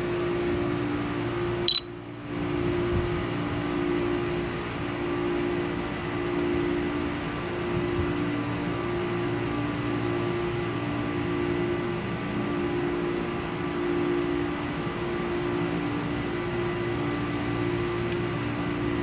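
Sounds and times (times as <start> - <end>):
high electronic beep: 1.7 - 1.9.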